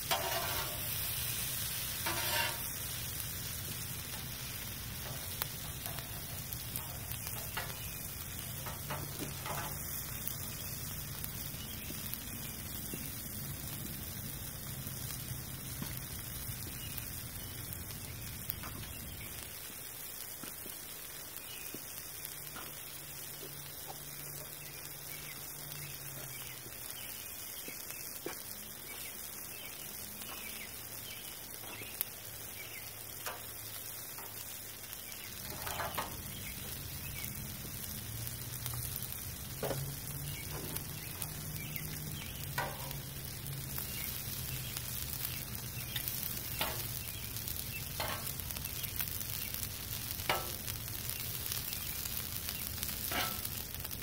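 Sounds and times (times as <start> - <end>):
food sizzling on griddle: 0.0 - 54.0
metal tongs clicking on griddle: 0.1 - 1.2, 1.9 - 2.8, 3.7 - 10.4, 33.2 - 33.6, 34.2 - 34.4, 35.3 - 36.3, 39.6 - 47.0, 47.9 - 48.6, 50.2 - 50.8, 52.8 - 53.9.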